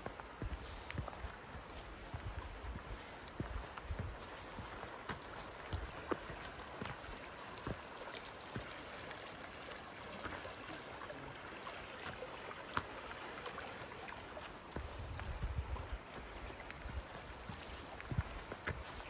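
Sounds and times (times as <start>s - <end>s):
footsteps on dirt trail: 0.0s - 10.6s, 11.4s - 19.0s
river flowing over rocks: 0.0s - 19.0s.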